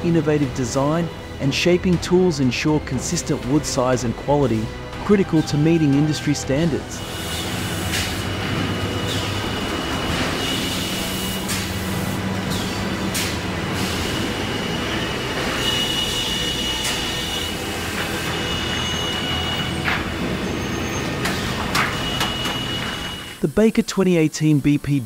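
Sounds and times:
sawmill machinery rumble: 0.0 - 25.0
high squeal: 13.8 - 23.5.

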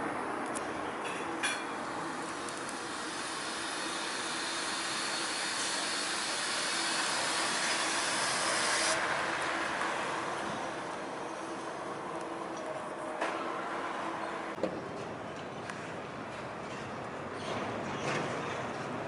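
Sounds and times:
high hiss: 1.8 - 9.0.

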